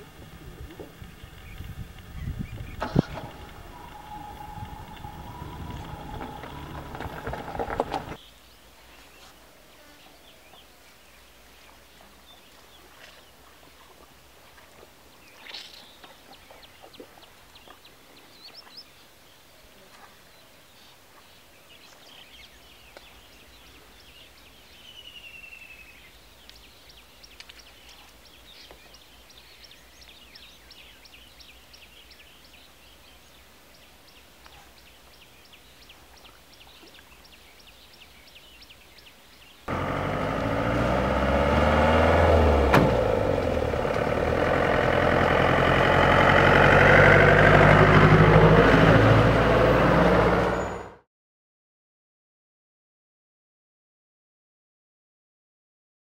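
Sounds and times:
wild birds chirping and whistling: 0:00.0 - 0:09.4, 0:20.3 - 0:39.7.

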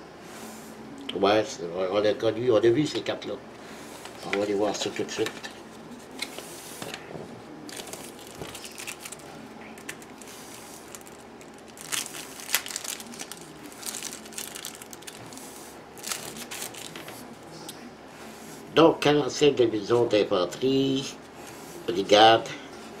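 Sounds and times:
plastic wrapping crinkling and tearing: 0:07.7 - 0:15.4, 0:16.0 - 0:17.2.

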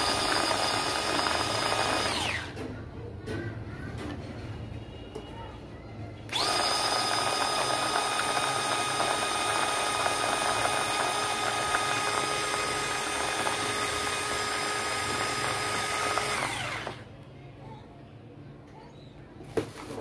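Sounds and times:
mini chopper motor whine: 0:00.0 - 0:02.6, 0:06.3 - 0:17.1.

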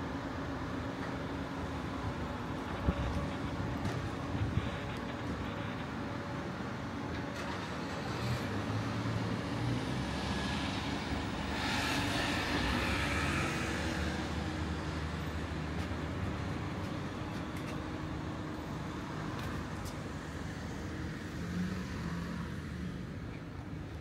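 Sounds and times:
steady engine rumble: 0:00.0 - 0:09.5.

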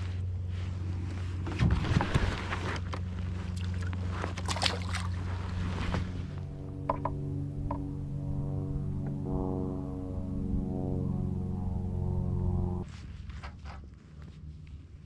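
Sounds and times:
fish splashing in water: 0:03.6 - 0:05.3
wind rumble on microphone: 0:05.1 - 0:12.9.

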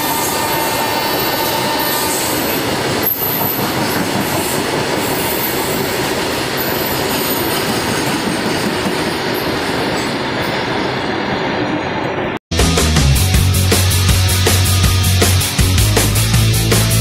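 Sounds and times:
high wheel squeal: 0:00.0 - 0:08.0
freight train rushing past: 0:00.0 - 0:16.9
rock music: 0:12.5 - 0:17.0.

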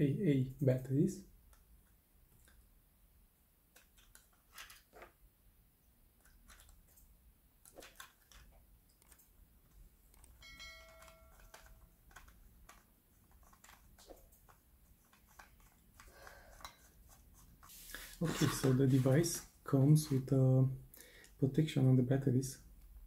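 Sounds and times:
electronic chime: 0:10.4 - 0:11.7.

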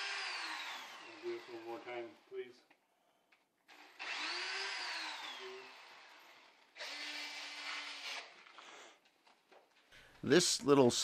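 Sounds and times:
power drill drilling into wood: 0:00.0 - 0:02.3, 0:03.7 - 0:08.6.

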